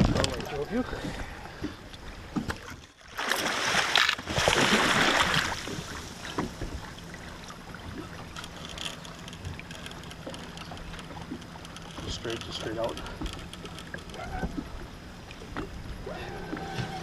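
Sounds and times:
heavy water splashing: 2.5s - 8.4s
water washing: 3.1s - 8.4s.

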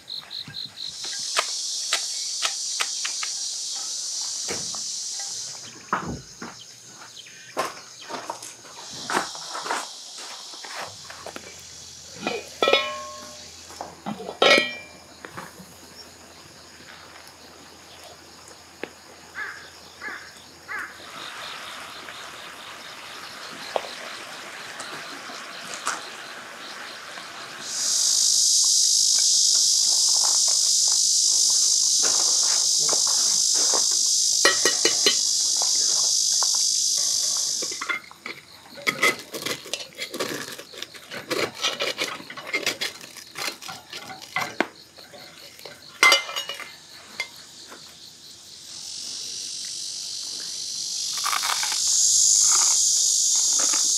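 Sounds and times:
high-pitched insect buzz: 0.0s - 41.0s, 42.0s - 53.9s
pot lid clanking: 12.2s - 13.4s, 14.1s - 15.0s, 45.7s - 46.7s
spoon scraping inside pot: 12.2s - 13.4s, 14.1s - 15.0s
utensils tapping cookware: 12.2s - 13.4s, 14.1s - 15.0s, 34.4s - 35.2s, 41.6s - 47.3s.

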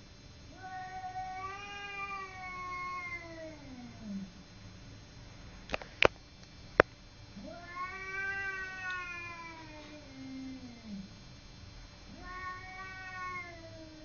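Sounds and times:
cats yowling: 0.5s - 4.3s, 7.4s - 11.1s, 12.1s - 14.0s.

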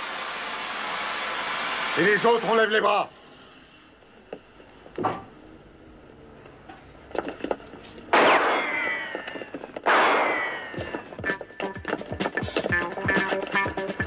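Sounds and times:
handgun shots with ringing tail: 8.1s - 9.2s, 9.8s - 11.0s.

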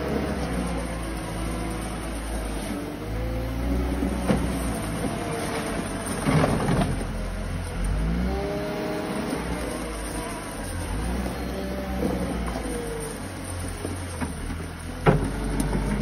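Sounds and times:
diesel engine revving: 0.0s - 16.0s.

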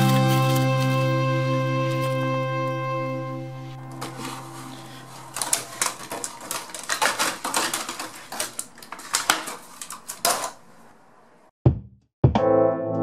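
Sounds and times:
plastic packaging crackling: 0.0s - 2.4s, 3.7s - 11.0s.

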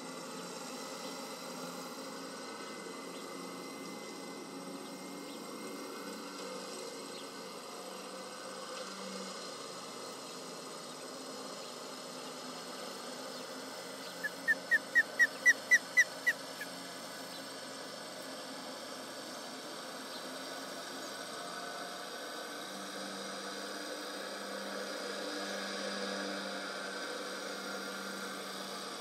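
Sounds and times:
osprey alarm calls: 14.0s - 16.7s.

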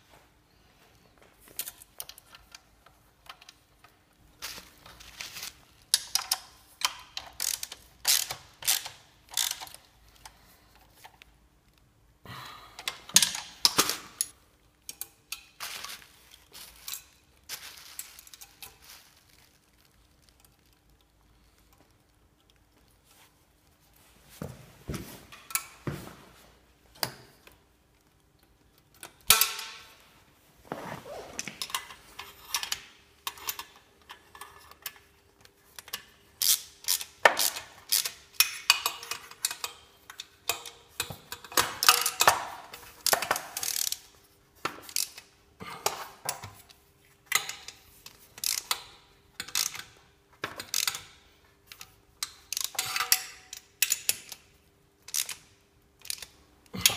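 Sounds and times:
ratchet wrench clicking: 6.0s - 9.8s, 35.9s - 40.7s, 43.6s - 44.0s, 48.4s - 48.8s, 49.4s - 49.8s, 50.6s - 51.0s, 55.1s - 55.4s, 56.0s - 56.3s.

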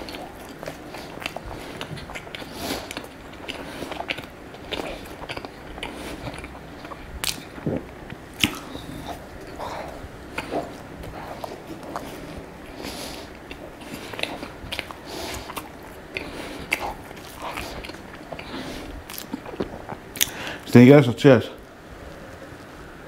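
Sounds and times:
sharp mouth clicks: 0.0s - 12.1s, 13.5s - 20.5s
chewing with mouth clicks: 0.0s - 20.6s.

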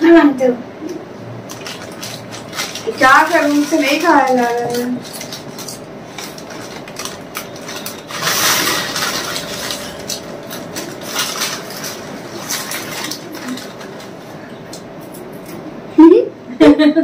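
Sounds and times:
foil chip packets crinkling: 1.4s - 14.8s
chips crunching: 1.4s - 15.6s.

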